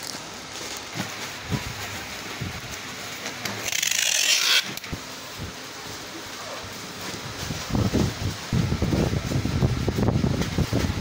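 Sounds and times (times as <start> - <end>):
packing tape screeching off roll: 3.4 - 5.0.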